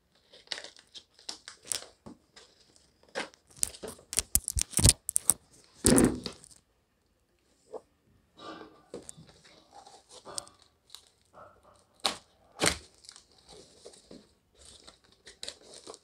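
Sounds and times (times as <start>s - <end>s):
tape crackling and tearing: 0.2s - 2.0s, 3.2s - 6.6s, 14.6s - 16.0s
scissors snipping packing tape: 3.5s - 5.4s.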